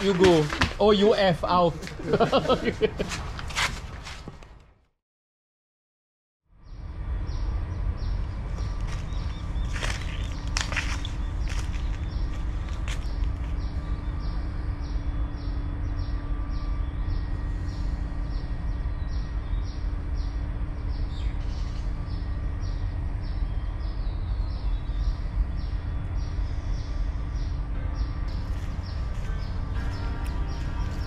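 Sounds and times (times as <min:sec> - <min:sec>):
steady low rumble: 0:00.0 - 0:04.2, 0:06.6 - 0:31.0
insects chirping: 0:07.1 - 0:27.6.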